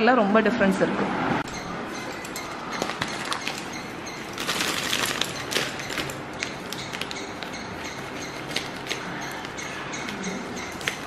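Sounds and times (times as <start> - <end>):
foil pouch crinkling: 2.8 - 9.4.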